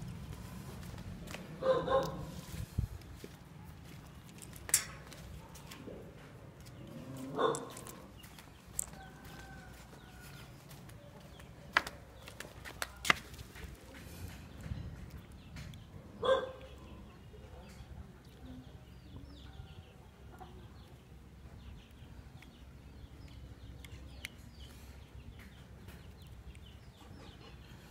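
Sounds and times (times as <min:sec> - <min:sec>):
rooster crowing: 0:09.0 - 0:10.5.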